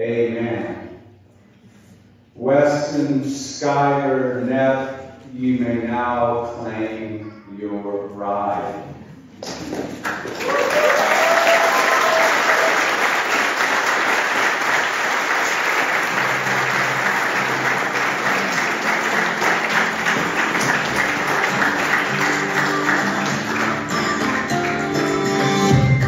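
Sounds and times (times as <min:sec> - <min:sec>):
guests applauding: 0:09.4 - 0:26.0
music: 0:15.9 - 0:26.0.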